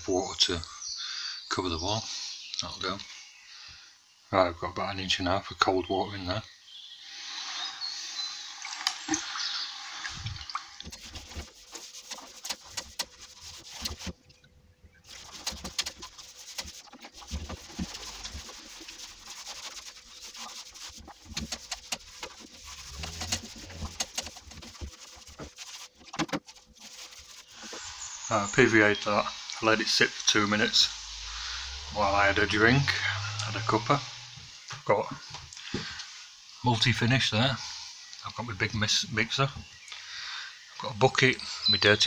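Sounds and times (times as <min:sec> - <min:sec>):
brush stirring in plastic bucket: 0:10.7 - 0:14.4, 0:15.0 - 0:34.3
brush scrubbing plaster wall: 0:10.8 - 0:14.4, 0:15.0 - 0:34.6.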